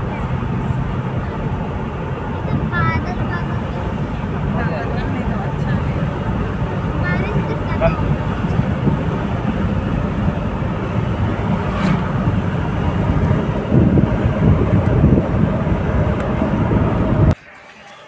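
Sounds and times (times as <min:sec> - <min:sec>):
low bumps: 0:00.0 - 0:17.4
vehicle tyres and engine rumble: 0:00.0 - 0:18.0.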